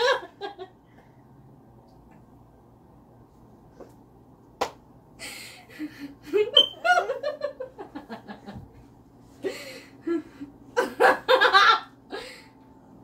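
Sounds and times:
woman laughing: 5.7 - 8.4.

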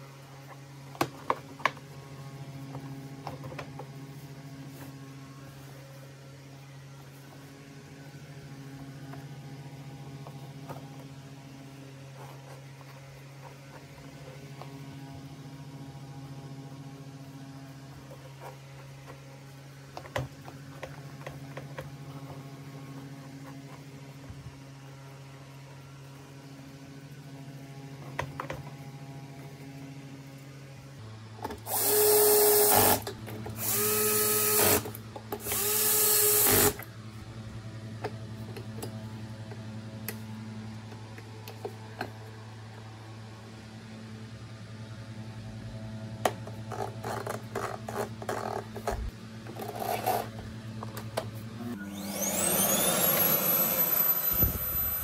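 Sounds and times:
cordless drill motor: 31.5 - 36.8, 51.7 - 55.0.

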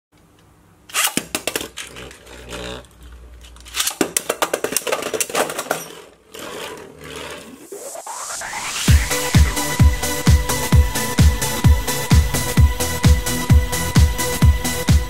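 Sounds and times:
spinning tops clacking together: 3.5 - 7.7
spinning top whirring: 4.6 - 9.6.

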